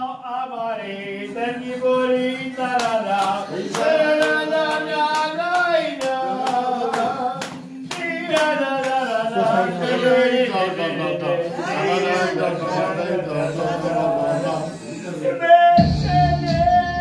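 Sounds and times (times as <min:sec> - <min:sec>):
person singing: 0:00.0 - 0:17.0
rhythmic hand clapping: 0:01.4 - 0:10.9.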